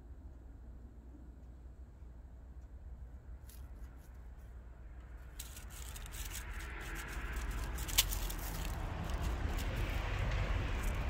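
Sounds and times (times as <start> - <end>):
cat stepping through dry leaves: 5.1 - 11.0.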